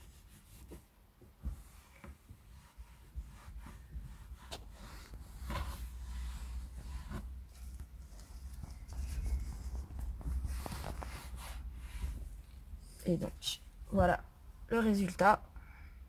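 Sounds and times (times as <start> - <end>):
cloth rubbing on leather: 0.0 - 12.4.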